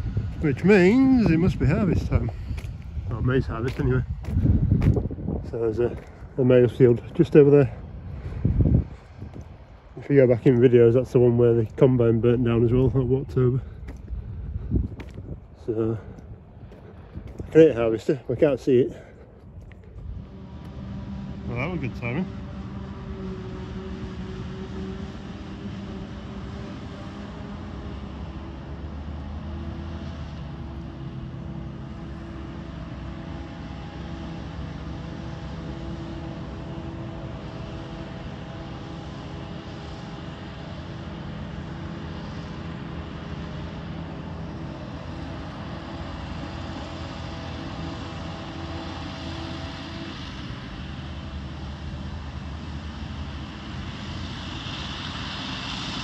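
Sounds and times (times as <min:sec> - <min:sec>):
engine drone: 0:00.0 - 0:56.0
whining tone: 0:19.1 - 0:29.4.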